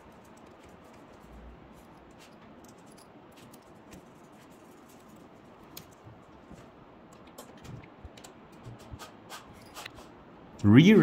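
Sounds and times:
screwdriver scratching and clicking: 7.1s - 10.1s.

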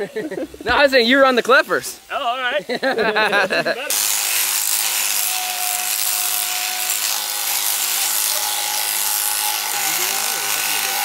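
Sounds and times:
electric clippers buzzing: 3.9s - 11.0s.

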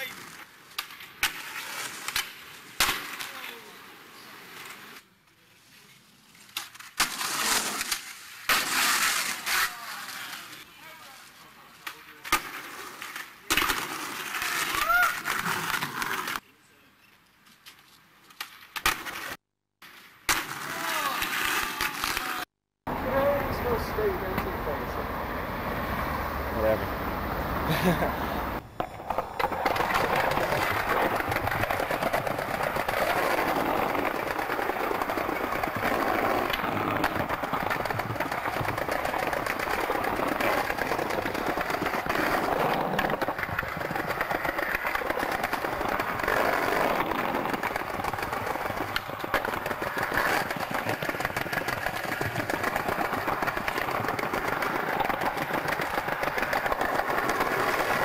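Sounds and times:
skateboard wheels rolling on pavement: 0.0s - 16.4s, 17.1s - 58.0s
skateboard knocks: 28.7s - 58.0s.

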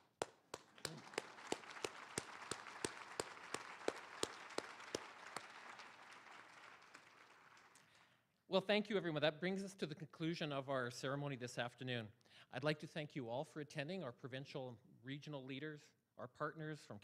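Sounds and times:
audience applauding: 0.0s - 8.1s
close hand claps: 0.0s - 8.1s.

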